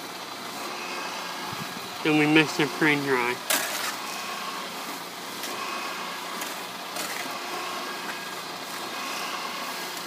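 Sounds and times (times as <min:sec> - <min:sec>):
mixer motor humming: 0:00.0 - 0:10.0
hoe scraping mortar: 0:03.5 - 0:04.4, 0:05.4 - 0:10.0.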